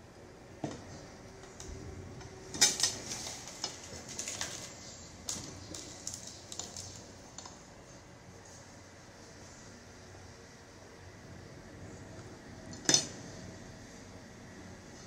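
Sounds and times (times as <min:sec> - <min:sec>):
cutlery clatter: 0:12.8 - 0:13.2.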